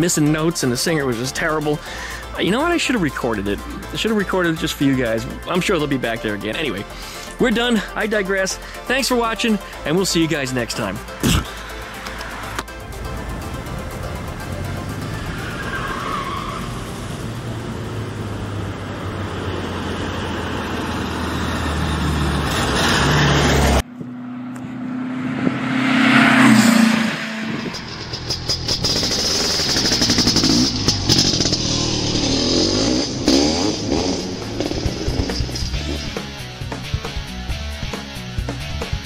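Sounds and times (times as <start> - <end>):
vehicle engine and road noise: 0.0 - 39.0
engine revving: 10.4 - 39.0
fast rattling run: 27.6 - 36.2.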